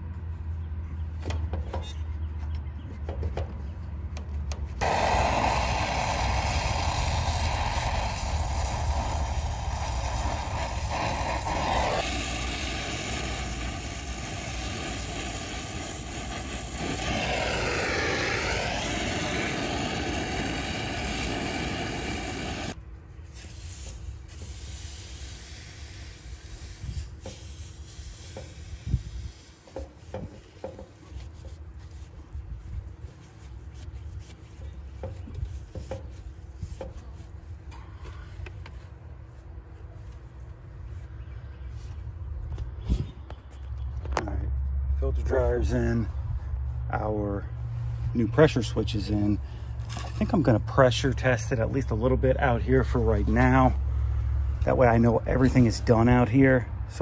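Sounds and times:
brazing torch hissing: 0:04.8 - 0:30.5.

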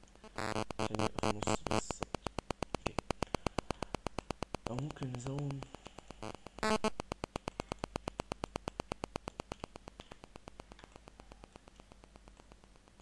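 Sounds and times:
rapid even clicking: 0:00.0 - 0:13.0
short buzzy tone: 0:06.2 - 0:06.9.

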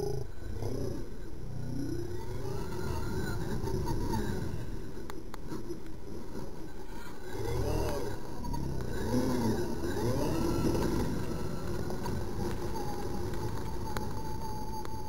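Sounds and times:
toy truck motor revving: 0:00.0 - 0:05.8, 0:06.4 - 0:14.8
tires sliding on loose dirt: 0:00.0 - 0:15.0.

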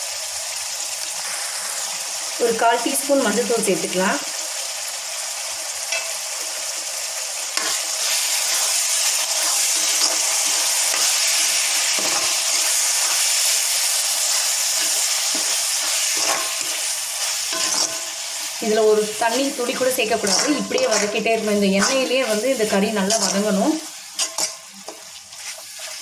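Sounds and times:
meat sizzling in hot oil: 0:00.0 - 0:26.0
spoon scraping a pan: 0:07.6 - 0:26.0.

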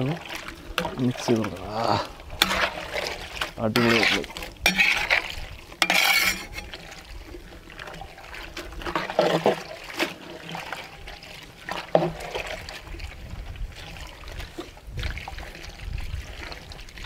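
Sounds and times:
liquid sloshing in metal pot: 0:00.0 - 0:17.0
ladle knocking metal pot: 0:02.4 - 0:02.9, 0:03.8 - 0:05.2, 0:05.8 - 0:06.8.

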